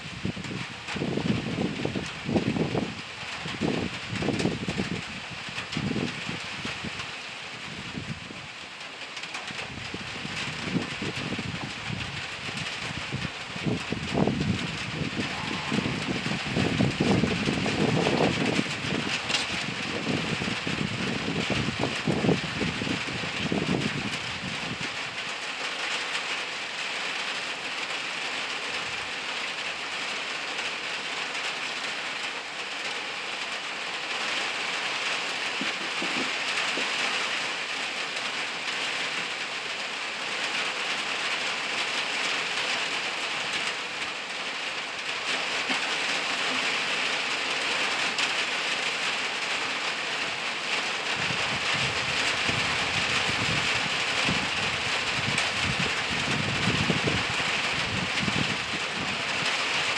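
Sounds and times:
rain on leafy undergrowth: 0.0 - 59.9
low rumble: 14.0 - 18.0.

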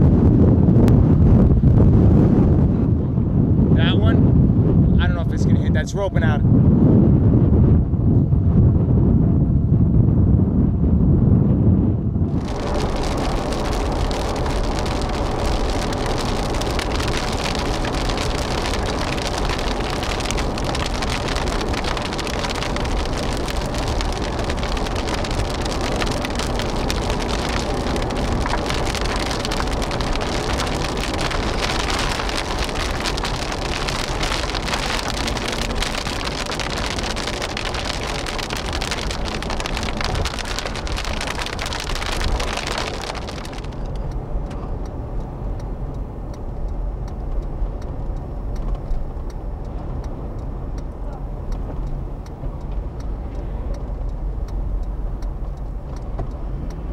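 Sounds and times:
car engine and tyre noise: 0.0 - 56.9
rain hitting car roof: 12.2 - 56.9.

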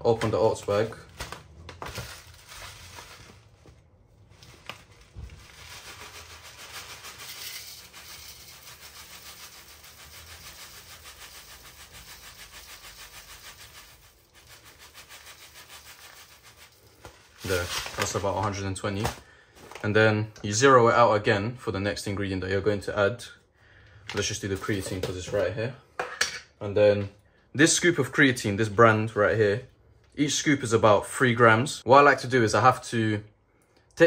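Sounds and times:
oats rustling out of plastic bag: 0.7 - 20.0.

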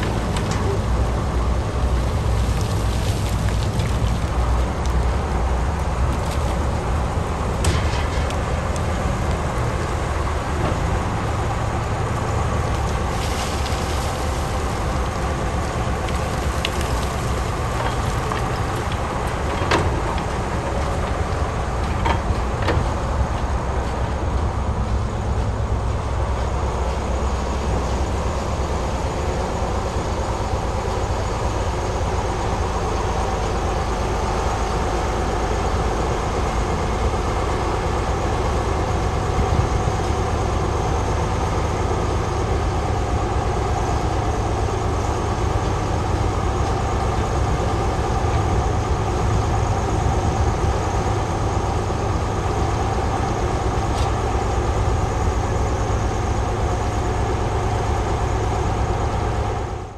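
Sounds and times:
excavator engine running: 0.0 - 59.9.

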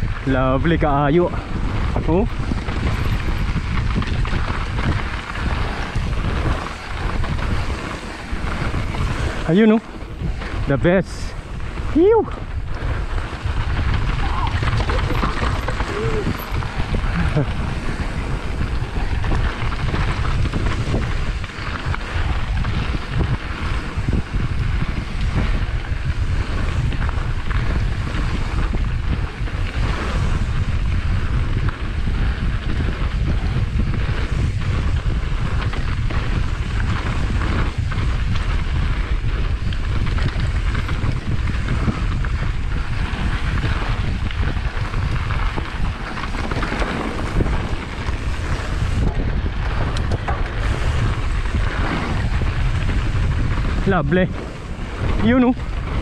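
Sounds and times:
tyre and trail rumble: 0.0 - 56.0
wind buffeting microphone: 0.0 - 56.0
bike knocks and rattles: 12.9 - 56.0.

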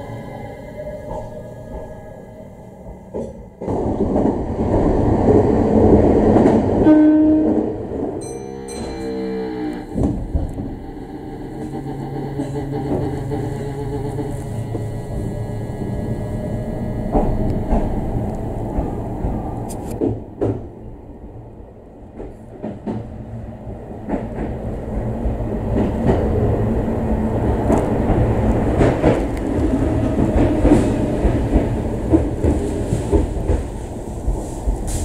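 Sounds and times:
electric train low rumble: 0.0 - 35.0
wheels clacking on rails: 2.9 - 15.3, 16.9 - 20.7, 23.9 - 35.0.

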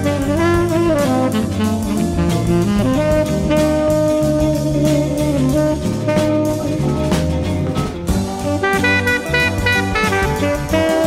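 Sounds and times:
light instrumental band music: 0.0 - 11.0.

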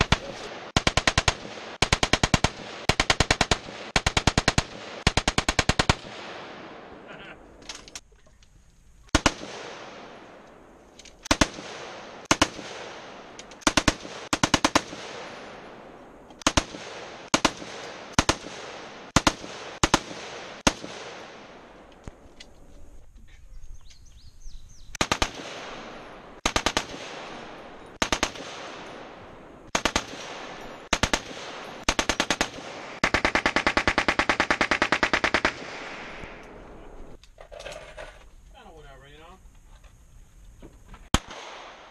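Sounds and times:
machine-gun fire echoing: 0.0 - 7.1, 9.1 - 22.1, 25.0 - 37.1, 41.1 - 41.9.

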